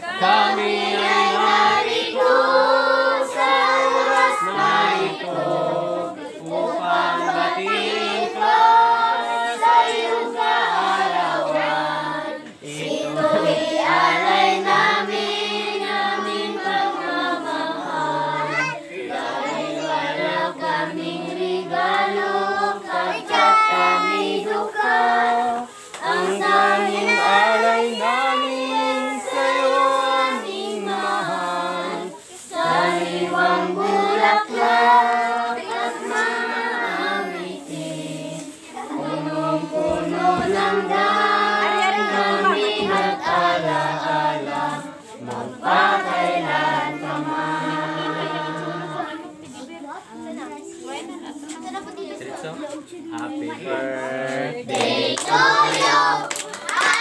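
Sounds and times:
group of voices singing: 0.0 - 57.0.

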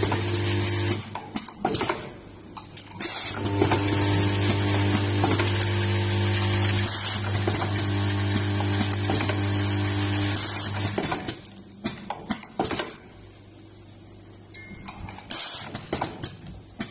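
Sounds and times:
machine clicking and knocking: 0.9 - 2.2, 10.7 - 13.1, 15.6 - 16.9
machine humming: 3.3 - 11.0.

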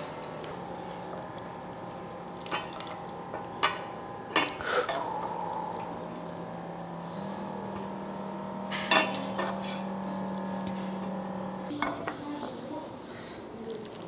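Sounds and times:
utensils knocking against bowl and pot: 8.7 - 10.0.

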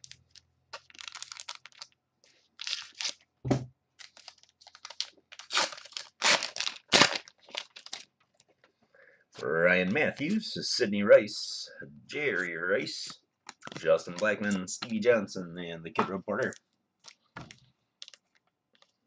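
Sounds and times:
wrapper being torn open: 0.0 - 2.0, 2.6 - 3.2, 4.0 - 8.1, 13.4 - 14.6.

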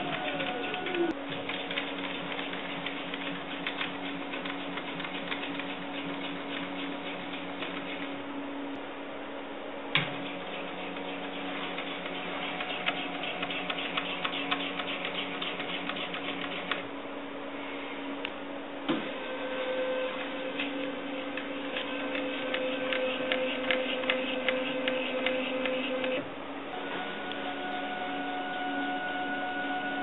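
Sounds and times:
rapid machine ticking: 0.0 - 8.1, 10.2 - 16.8, 20.6 - 26.2
stepper motor whine: 19.0 - 30.0.

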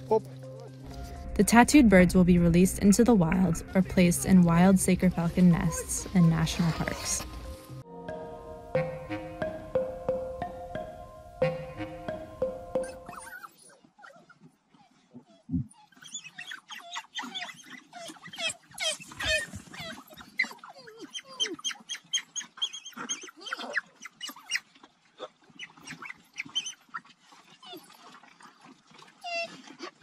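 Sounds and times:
wild dogs twittering and squealing: 3.2 - 7.5, 12.1 - 30.0.

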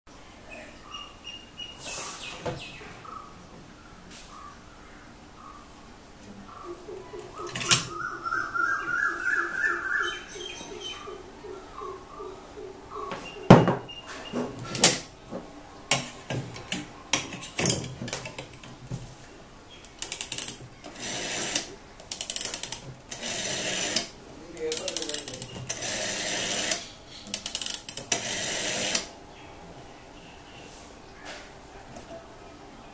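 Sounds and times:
bird chirping: 0.1 - 14.8.

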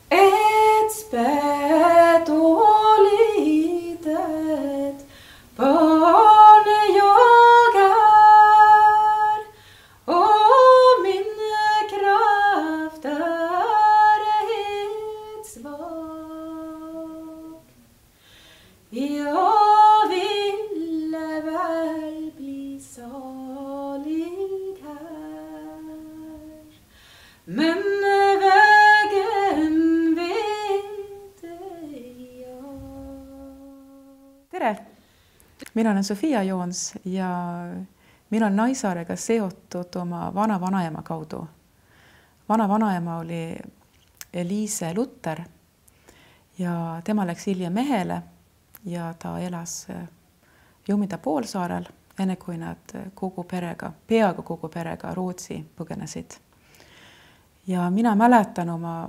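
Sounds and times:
woman singing unaccompanied: 0.0 - 17.7, 18.9 - 34.8, 35.6 - 41.5, 46.6 - 48.2, 57.6 - 59.0.

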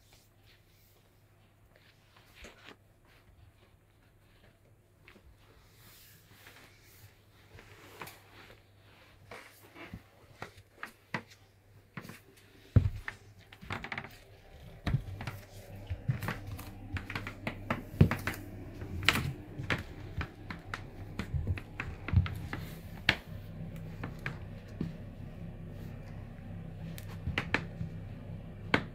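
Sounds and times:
sneaker footsteps on tile floor: 9.2 - 28.9
steady low hum: 12.1 - 28.9.

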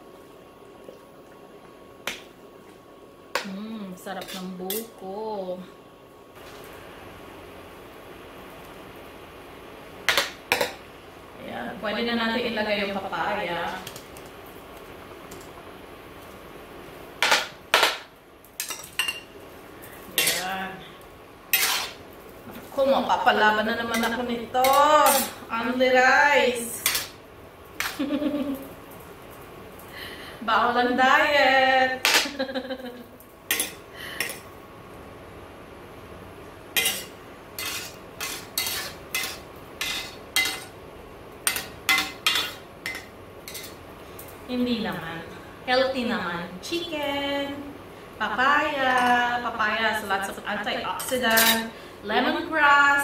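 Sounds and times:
utensil clinking against cookware: 36.8 - 40.7, 41.4 - 43.8.

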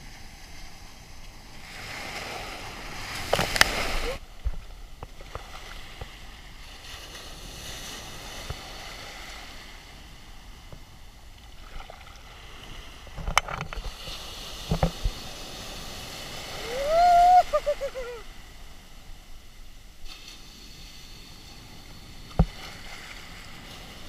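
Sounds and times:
surf washing and foaming: 0.0 - 24.0
loud rising cry: 16.6 - 18.2.

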